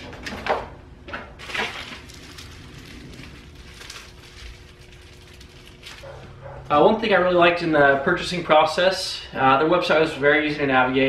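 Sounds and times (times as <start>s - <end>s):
packaging rustling and crinkling: 1.4s - 6.1s.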